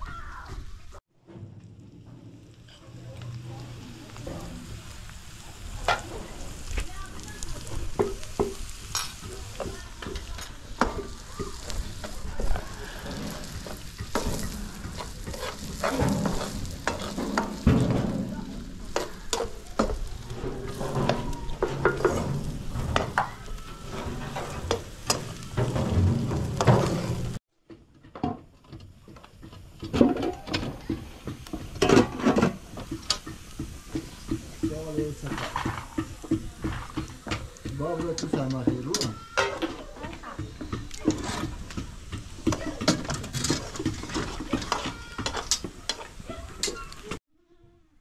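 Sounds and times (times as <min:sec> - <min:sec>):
fire crackling: 0:00.0 - 0:27.4, 0:28.6 - 0:47.2
greens sizzling in a pan: 0:02.4 - 0:27.4, 0:29.0 - 0:47.2
spoon scraping a pan: 0:07.6 - 0:27.4, 0:31.2 - 0:47.0.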